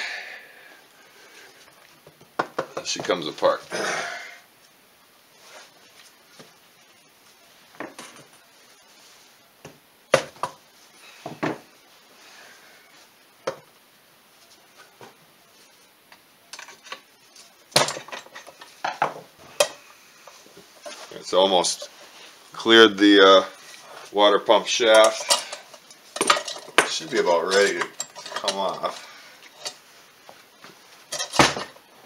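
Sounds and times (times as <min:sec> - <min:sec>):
hand tools clinking on metal: 0:24.8 - 0:29.0.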